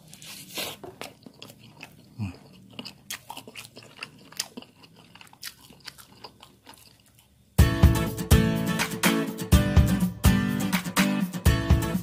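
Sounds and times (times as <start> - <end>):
crisp crunches of chewing: 0.0 - 7.5.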